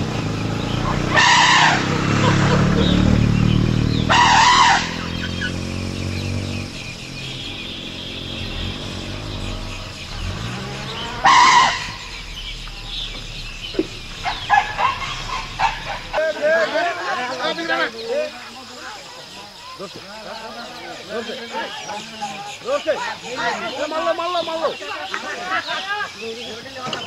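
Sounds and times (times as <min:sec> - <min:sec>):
vehicle engine running: 0:00.0 - 0:18.7
shrill bursts: 0:00.8 - 0:06.0, 0:07.1 - 0:17.4.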